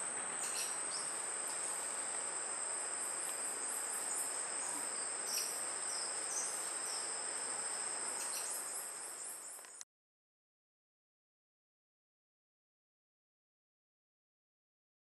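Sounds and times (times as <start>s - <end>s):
insect chorus: 0.0s - 9.8s.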